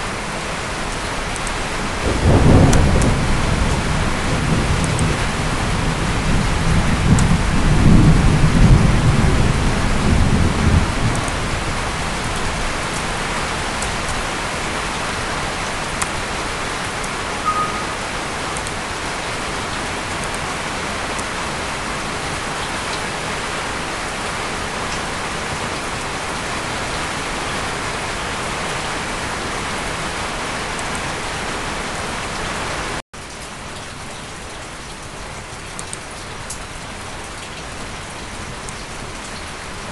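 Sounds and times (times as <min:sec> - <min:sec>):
heavy rain: 0:00.0 - 0:39.9
thunder rumbling: 0:02.0 - 0:12.9.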